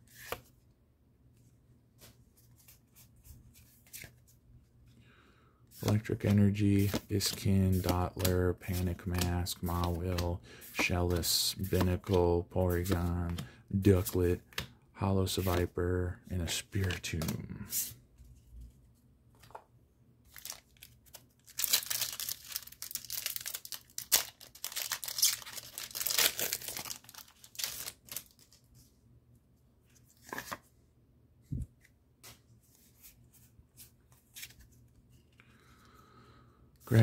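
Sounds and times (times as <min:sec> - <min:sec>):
cards clicking and tapping: 0:05.8 - 0:14.8
foil wrapper crinkling: 0:20.3 - 0:28.5.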